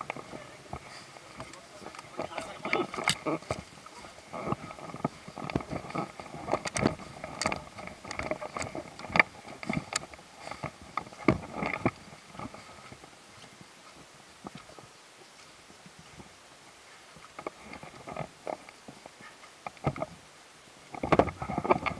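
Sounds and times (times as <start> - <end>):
footsteps on leaves and branches: 0.2 - 9.5.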